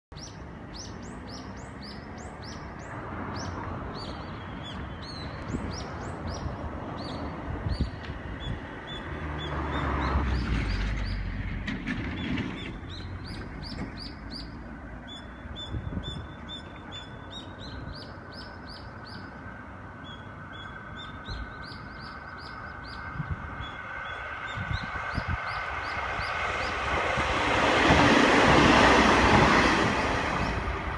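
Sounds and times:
diesel railcar passing: 0.1 - 30.9
birds chirping: 12.1 - 27.0.

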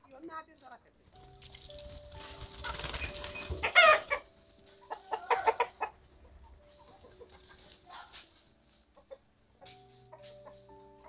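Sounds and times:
chickens clucking and squawking: 2.1 - 11.0.

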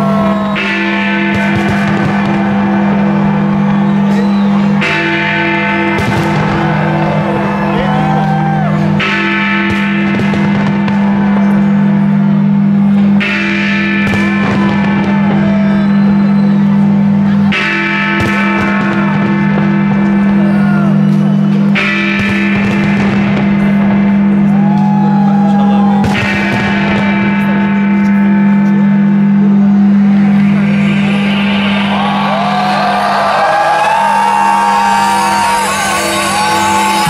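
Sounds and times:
crowd voices: 0.0 - 37.0
fireworks bursting: 1.3 - 5.2, 5.9 - 7.6, 9.7 - 11.6, 14.0 - 16.7, 21.8 - 23.9.

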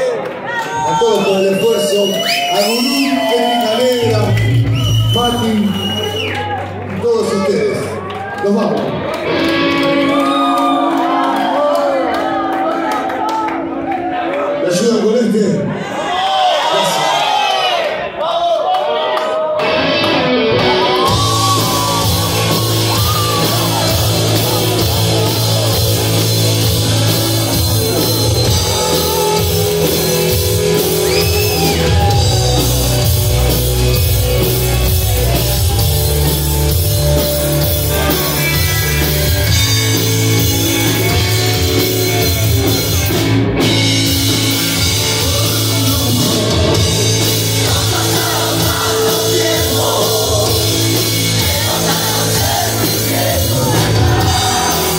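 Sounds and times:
bass guitar: 2.6 - 15.5, 19.6 - 54.9
electric guitar: 5.8 - 14.6, 19.5 - 54.9
drum kit: 19.6 - 54.9
person singing: 45.0 - 54.9.

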